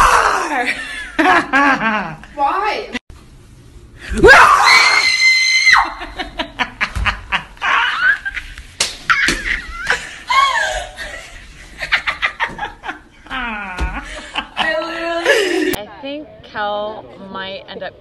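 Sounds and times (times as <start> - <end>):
high held scream: 4.1 - 6.0
women laughing and cackling: 9.1 - 15.8.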